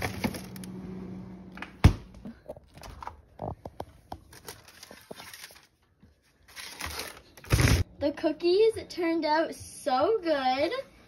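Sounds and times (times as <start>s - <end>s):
freezer low hum: 0.0s - 11.0s.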